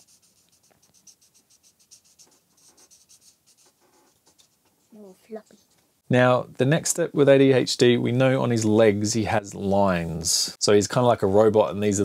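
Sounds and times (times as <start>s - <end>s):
pen scratching on paper: 0.0s - 5.1s.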